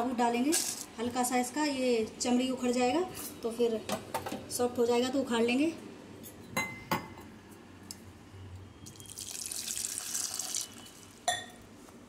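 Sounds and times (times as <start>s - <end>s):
water pouring into pot: 8.9s - 11.2s.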